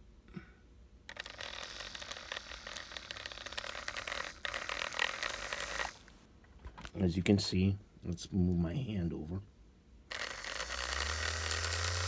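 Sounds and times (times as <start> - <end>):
toy train motor whirring: 1.1 - 6.1, 10.1 - 12.0.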